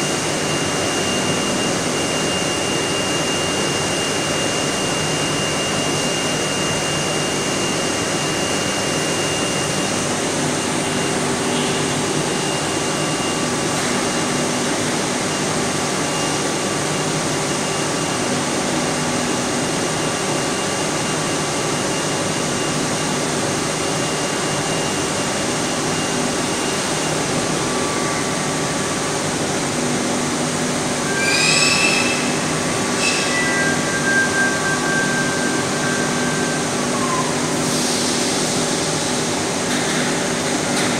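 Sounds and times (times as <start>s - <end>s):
faint machine whines: 0.0s - 40.9s
brief high squeal: 31.0s - 37.6s.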